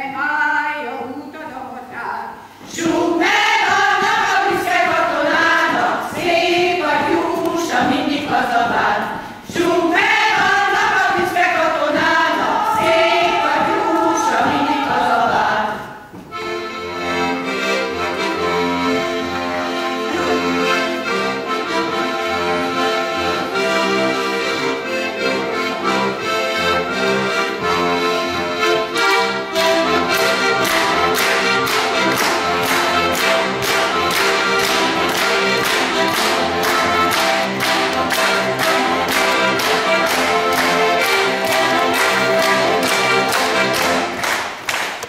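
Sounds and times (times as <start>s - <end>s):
women's choir singing: 2.7s - 16.2s, 29.2s - 44.2s
accordion playing: 2.8s - 44.6s
people clapping in time: 29.5s - 45.0s.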